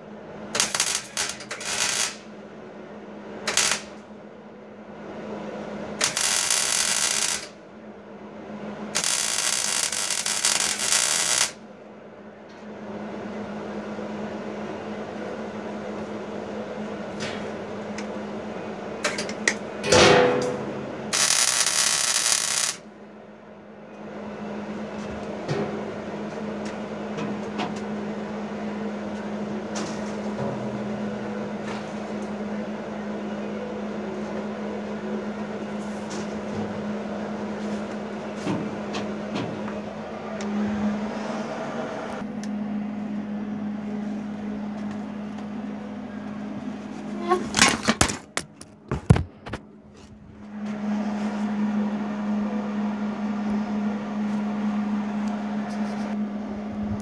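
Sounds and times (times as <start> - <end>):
steady low hum: 0.0 - 57.0
arc welding: 0.5 - 2.3, 3.4 - 4.0, 6.0 - 7.6, 8.9 - 11.6, 21.0 - 22.9.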